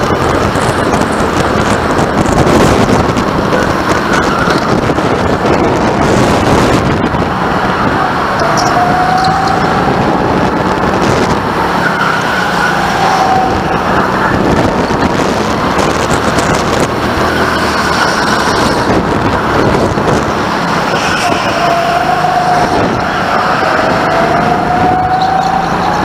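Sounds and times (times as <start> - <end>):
go-kart engine under throttle: 0.0 - 26.0
wind over microphone: 0.0 - 26.0
tyre squeals: 7.8 - 9.7, 17.2 - 18.8, 20.8 - 26.0.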